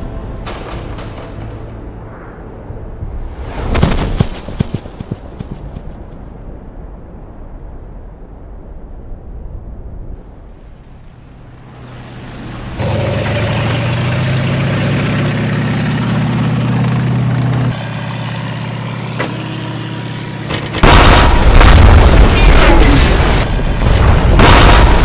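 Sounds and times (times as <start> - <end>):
loud explosions: 20.8 - 25.0.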